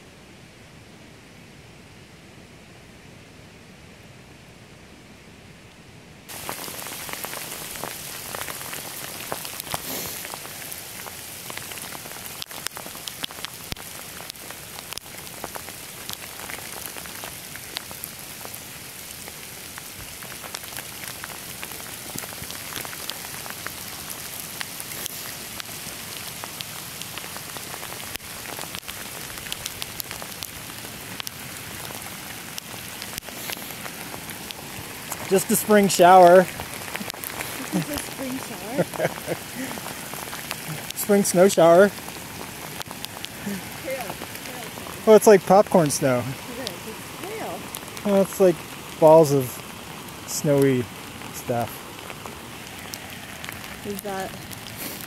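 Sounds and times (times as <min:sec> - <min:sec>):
snow pellets falling hiss: 0:06.3 - 0:55.0.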